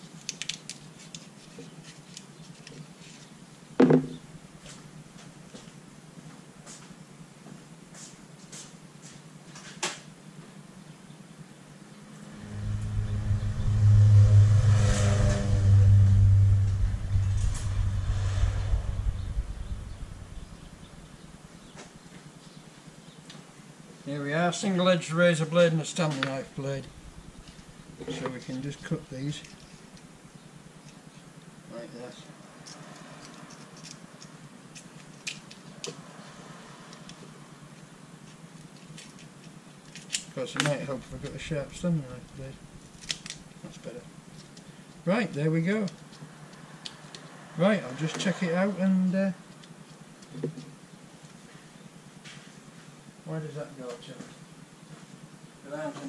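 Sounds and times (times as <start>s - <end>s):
steady low hum: 11.7s - 22.1s, 26.3s - 30.8s, 40.8s - 44.3s
vehicle engine droning: 11.8s - 22.1s, 26.2s - 30.8s, 40.8s - 43.8s.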